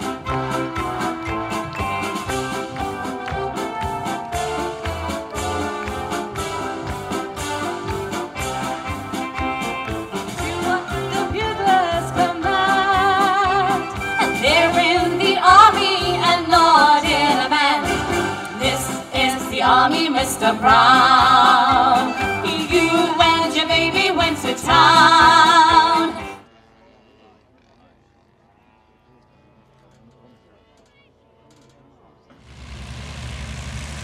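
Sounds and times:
instrumental backing track: 0:00.0 - 0:26.4
women singing in harmony: 0:10.4 - 0:26.4.

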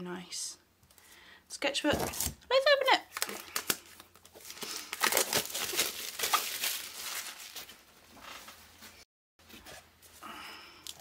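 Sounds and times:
plastic wrap crinkling and tearing: 0:03.1 - 0:08.8.

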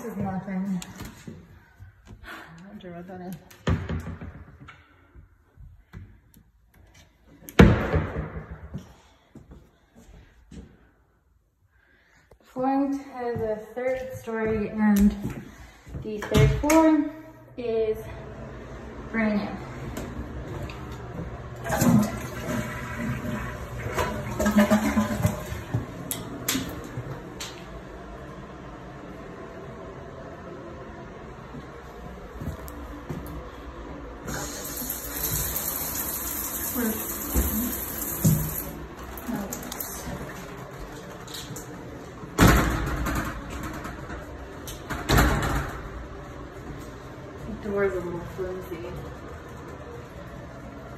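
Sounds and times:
toilet flushing and refilling: 0:18.1 - 0:29.3, 0:31.8 - 0:47.4.

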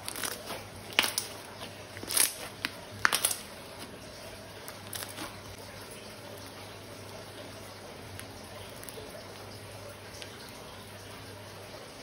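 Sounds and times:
slime crackling and clicking: 0:00.0 - 0:01.4, 0:02.0 - 0:03.5.

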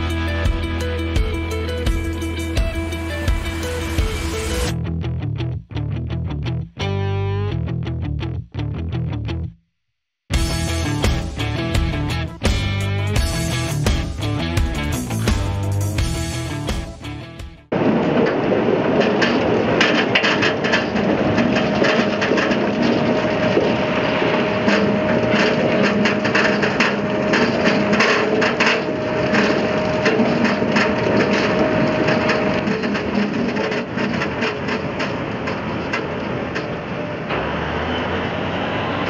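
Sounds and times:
steady mechanical hum: 0:18.1 - 0:39.0.

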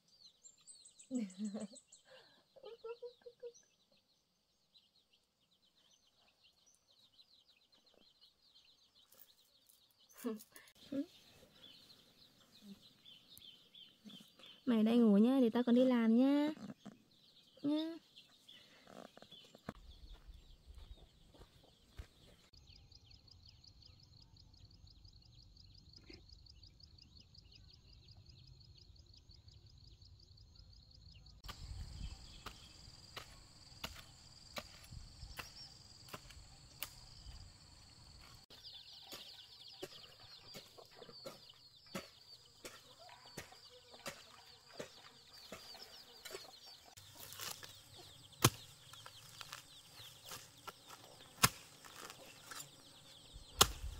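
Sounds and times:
chickens clucking: 0:39.8 - 0:42.0.

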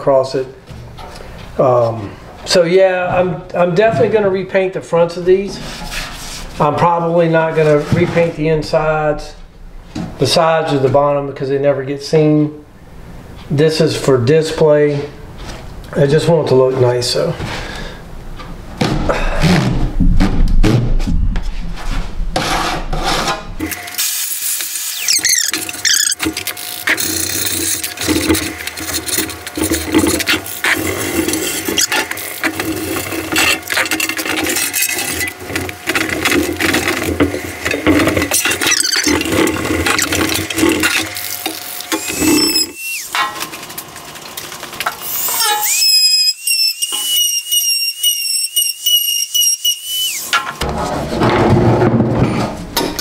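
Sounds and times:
high squeaks of rubbing on metal: 0:24.9 - 0:28.0, 0:38.3 - 0:40.1, 0:41.9 - 0:43.2, 0:45.1 - 0:50.3.

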